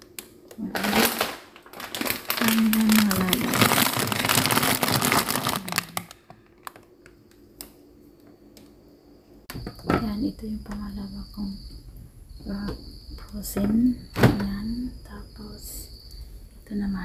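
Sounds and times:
plastic packaging crinkling: 0.0 - 6.9
steady low hum: 0.0 - 17.0.

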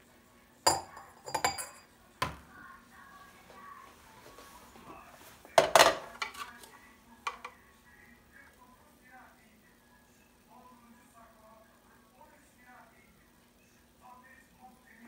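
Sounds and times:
glasses and mugs clinking: 0.7 - 1.9.

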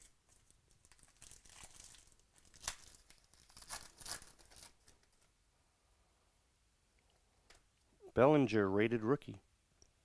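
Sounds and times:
foil wrapper ripping: 0.0 - 5.2
foil wrapper crinkling: 0.0 - 5.3.

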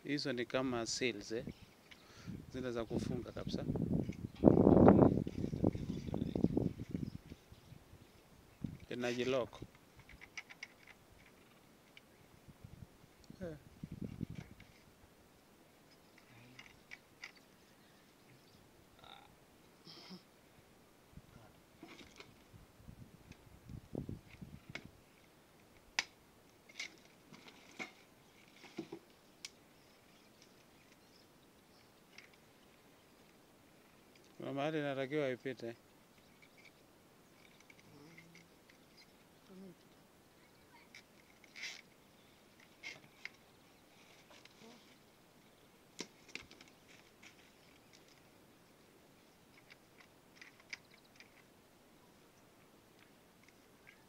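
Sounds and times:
low background hiss: 0.0 - 54.0
faint clicks and rustles of handling: 8.1 - 12.3, 14.1 - 18.4, 23.2 - 34.4, 36.1 - 40.0, 40.7 - 52.2, 52.9 - 54.0
soft rustling: 40.8 - 45.2.

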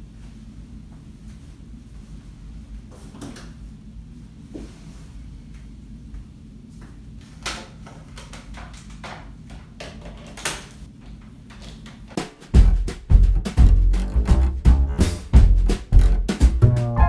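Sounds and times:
drum-heavy music: 12.2 - 17.0
low steady hum: 12.6 - 17.0.

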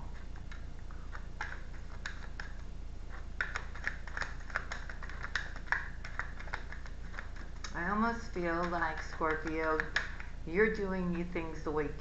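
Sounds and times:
cards being shuffled: 0.1 - 7.8, 8.5 - 10.3.

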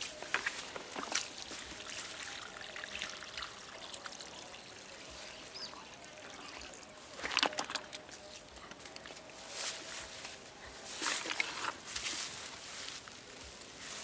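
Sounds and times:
water sloshing in plastic bucket: 0.2 - 4.4, 5.0 - 8.3, 10.9 - 11.9
splashing: 0.4 - 8.2.

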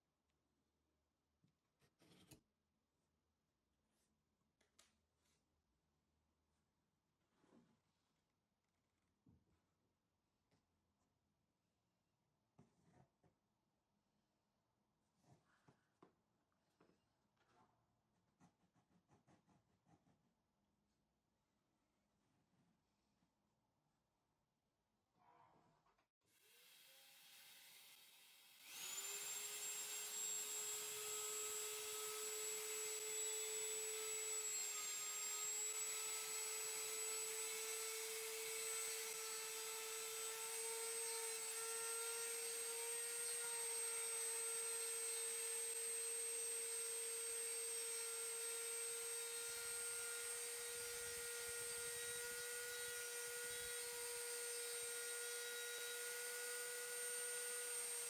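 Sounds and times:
rotary tool motor whining: 26.5 - 58.0.

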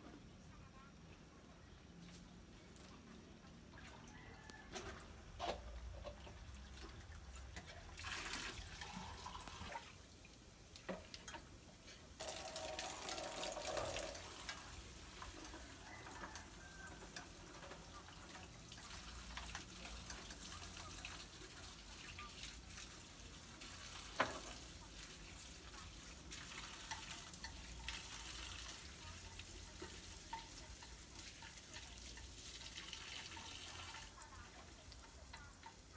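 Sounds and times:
food sizzling in hot oil: 7.8 - 35.9.

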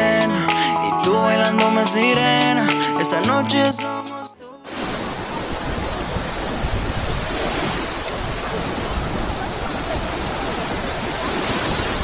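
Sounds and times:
sea surf breaking: 4.6 - 12.0.

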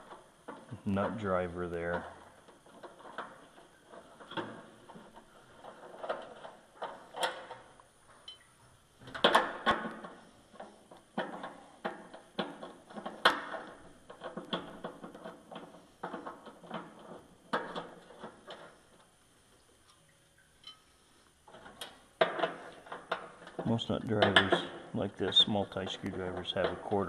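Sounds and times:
metallic clicks and knocks: 21.5 - 27.0.

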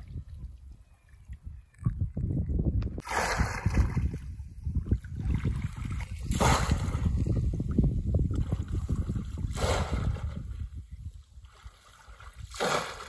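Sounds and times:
water sloshing and splashing: 3.0 - 13.0.

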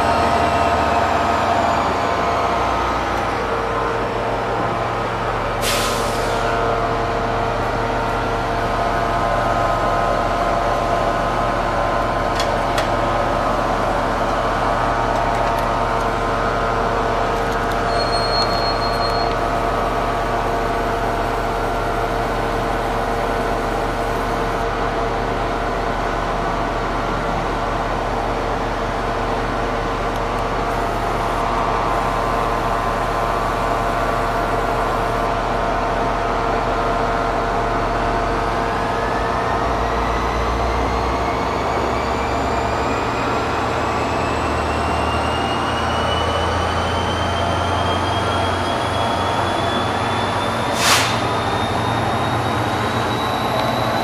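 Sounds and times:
diesel locomotive engine running: 0.0 - 54.0
short high beep: 17.9 - 19.4.

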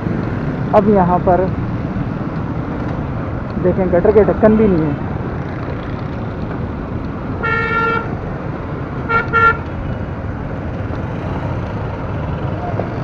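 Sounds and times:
road and engine noise: 0.0 - 13.0
vehicle horn toots: 7.4 - 8.1, 9.1 - 9.6.

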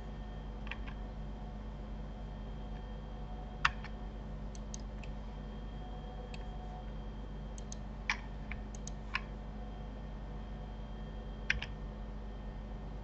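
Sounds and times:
steady low hum: 0.0 - 13.0
keyboard and mouse clicks: 4.5 - 5.2, 7.6 - 9.3, 11.5 - 11.8.

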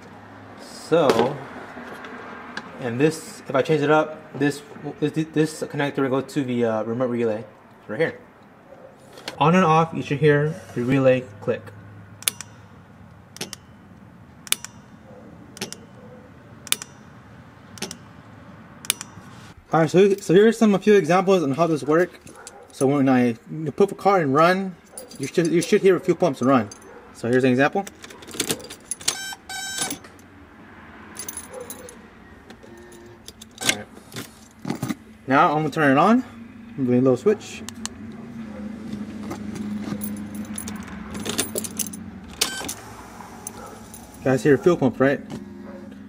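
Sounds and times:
fuel pump hum: 10.5 - 19.7, 32.4 - 46.0
car keys jangling: 12.2 - 18.2, 18.8 - 19.4, 22.1 - 23.0, 24.8 - 30.3, 31.1 - 32.0, 32.6 - 35.0, 39.2 - 44.7
sharp click: 14.4 - 14.9, 18.8 - 19.2.

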